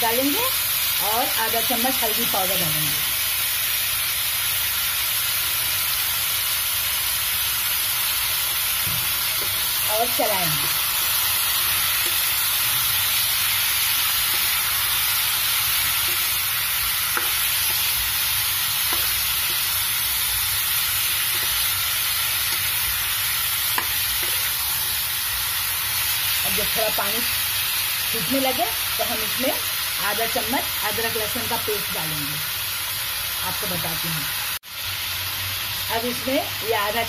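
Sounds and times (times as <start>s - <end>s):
chicken sizzling in hot oil: 0.0s - 37.0s
spoon stirring in pan: 10.6s - 25.1s.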